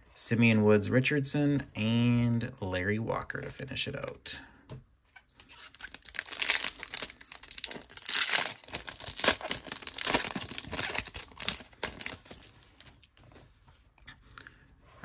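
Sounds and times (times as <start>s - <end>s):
foil wrapper crinkling and tearing: 5.4s - 13.0s.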